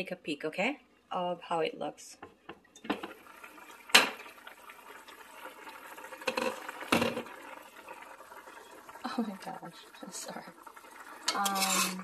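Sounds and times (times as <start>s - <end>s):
soup bubbling at a boil: 2.5s - 12.0s.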